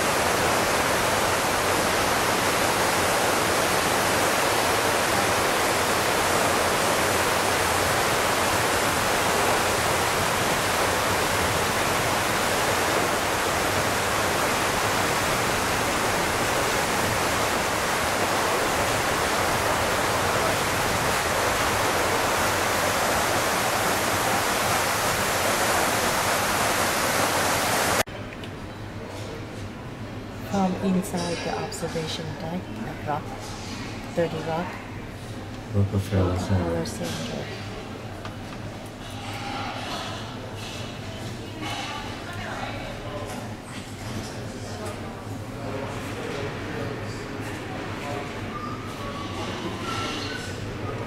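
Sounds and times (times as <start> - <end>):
water cascading into basin: 0.0 - 28.1.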